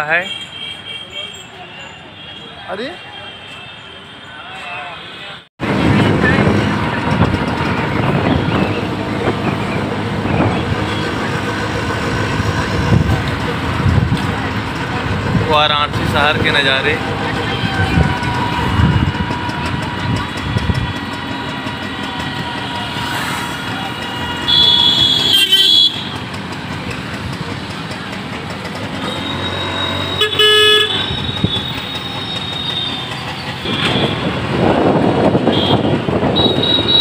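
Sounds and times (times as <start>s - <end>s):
vehicle horns honking: 0.0s - 5.4s, 7.5s - 13.1s, 16.4s - 26.5s, 28.9s - 34.6s, 35.2s - 37.0s
rumble of engines and tyres: 5.6s - 37.0s.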